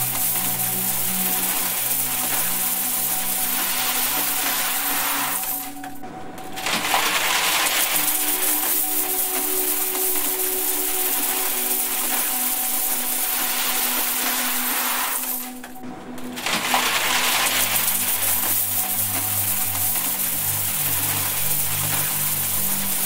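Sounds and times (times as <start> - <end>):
coins pouring and clinking: 0.0 - 6.0, 6.6 - 15.7, 16.4 - 23.0.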